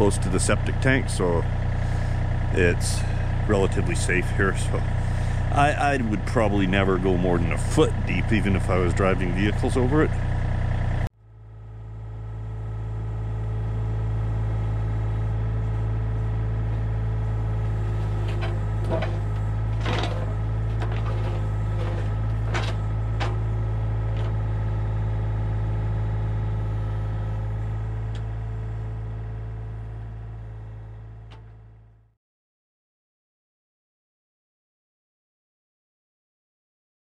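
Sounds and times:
excavator diesel engine running: 0.0s - 31.9s.

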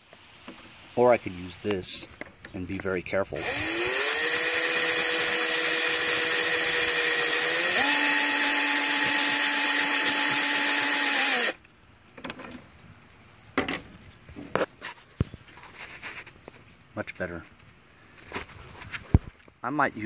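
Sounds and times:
power drill wire brush scrubbing metal: 3.4s - 11.6s.

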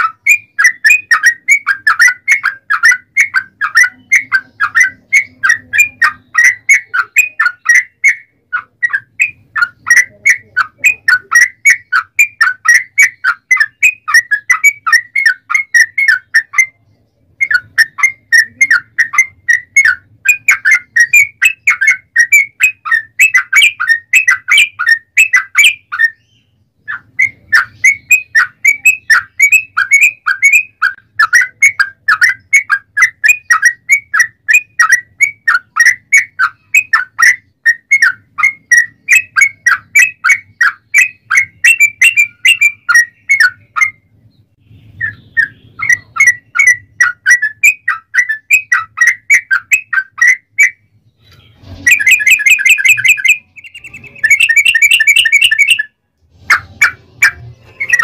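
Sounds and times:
bird singing rapid notes: 0.0s - 58.0s.

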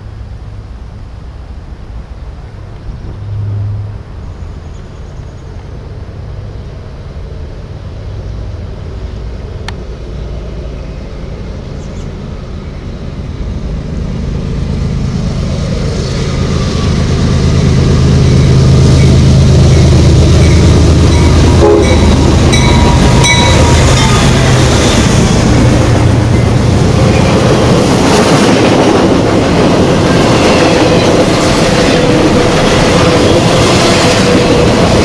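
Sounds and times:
diesel locomotive engine rumble: 0.0s - 35.0s
freight cars rolling past: 0.0s - 35.0s
brief high-pitched tones: 3.2s - 4.1s.

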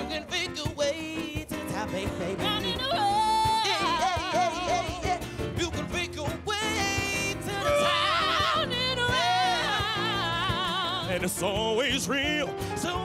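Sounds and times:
conga drums: 0.0s - 13.0s
singers with heavy vibrato: 7.4s - 11.1s.

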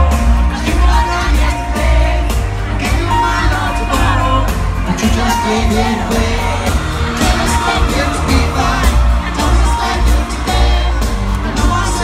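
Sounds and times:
heavy bass: 0.0s - 12.0s
lead vocal singing: 0.0s - 12.0s
live band playing pop song: 0.0s - 12.0s.

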